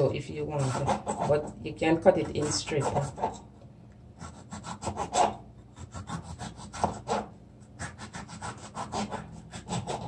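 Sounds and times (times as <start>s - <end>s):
knife slicing pepper on board: 4.2s - 10.0s.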